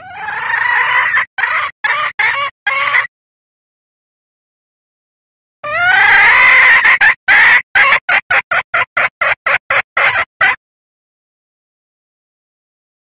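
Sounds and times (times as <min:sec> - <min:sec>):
hen calling: 0:00.0 - 0:03.1, 0:05.6 - 0:10.6
hen clucking: 0:00.0 - 0:03.1, 0:05.6 - 0:10.6.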